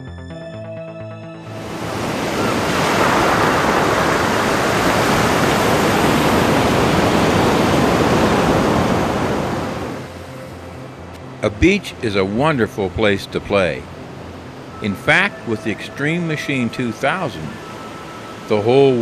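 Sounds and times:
background music: 0:00.0 - 0:02.3, 0:09.9 - 0:19.0
ocean surf breaking: 0:01.5 - 0:19.0.

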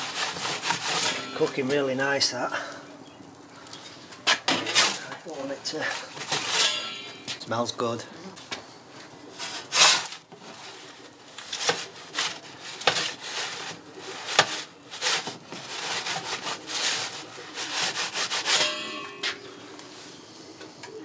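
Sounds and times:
metal peel scraping on stone: 0:00.0 - 0:02.2, 0:03.6 - 0:05.1, 0:05.7 - 0:07.5, 0:09.4 - 0:10.8, 0:11.4 - 0:19.8.

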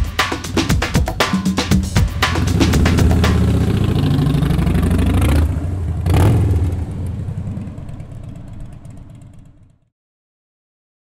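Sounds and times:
motorcycle engine revving: 0:02.2 - 0:09.8.

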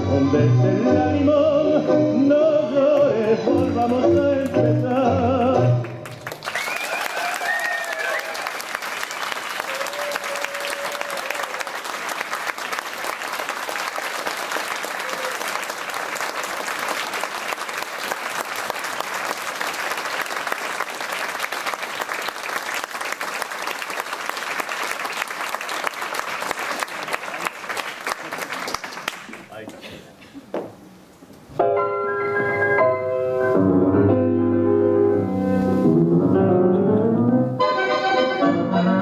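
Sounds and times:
crowd applauding: 0:05.8 - 0:29.6.

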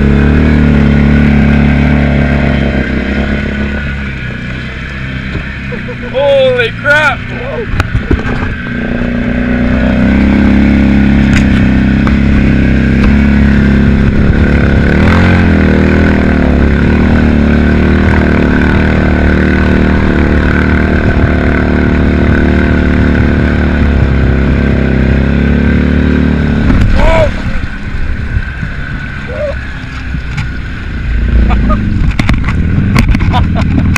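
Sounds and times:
vehicle engine running hard: 0:00.0 - 0:33.9.

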